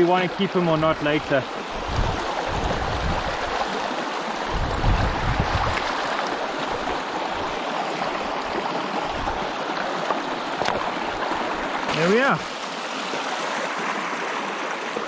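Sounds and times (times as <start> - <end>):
stream rushing over rocks: 0.0 - 15.0
low microphone rumbles: 1.8 - 3.5, 4.5 - 5.8.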